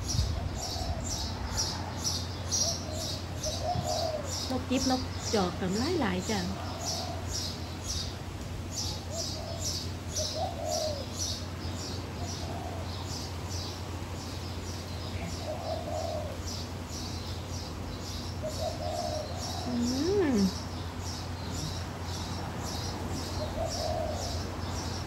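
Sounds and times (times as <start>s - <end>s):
doves cooing: 0.0s - 25.0s
small bird chirping: 8.7s - 25.0s.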